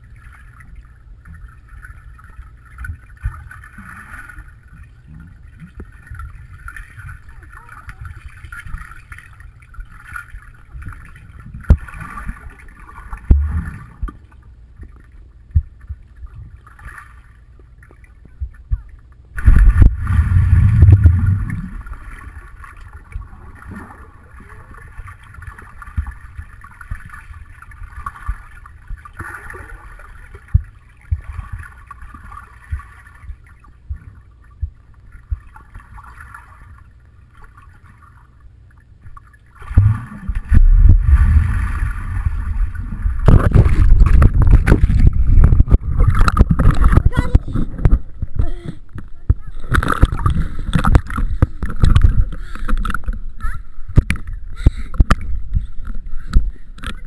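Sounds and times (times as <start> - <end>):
underwater rumble of water: 0.0 - 57.0
underwater knocks and thumps: 2.7 - 23.8, 25.2 - 36.2, 39.0 - 57.0
loud water churning: 19.4 - 30.6, 39.6 - 48.6.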